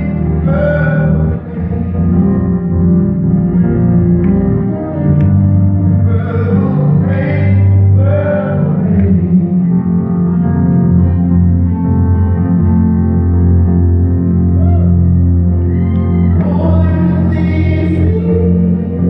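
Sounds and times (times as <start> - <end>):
person singing: 0.0 - 2.8, 6.0 - 10.1, 15.9 - 19.0
low instrumental chords: 0.0 - 19.0.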